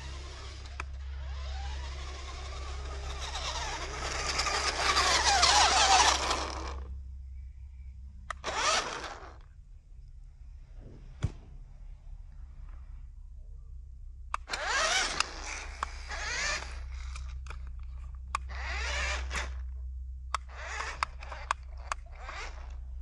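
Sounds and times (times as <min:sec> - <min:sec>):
toy electric motor whining: 0:00.0 - 0:06.9, 0:08.3 - 0:09.4, 0:14.4 - 0:19.7, 0:20.3 - 0:22.9.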